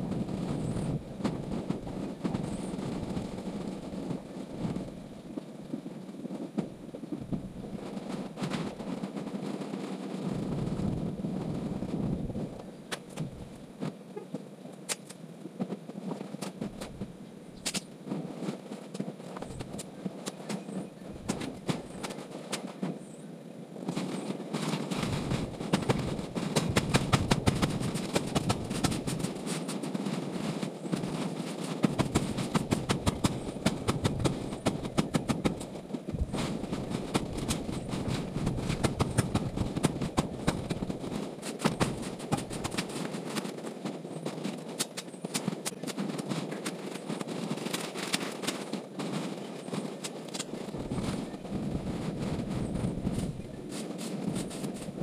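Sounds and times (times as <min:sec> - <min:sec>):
dry wood snapping crackle: 0:14.7 - 0:15.2, 0:16.2 - 0:18.0, 0:18.8 - 0:22.7, 0:23.9 - 0:30.0, 0:30.9 - 0:43.7, 0:44.4 - 0:51.3.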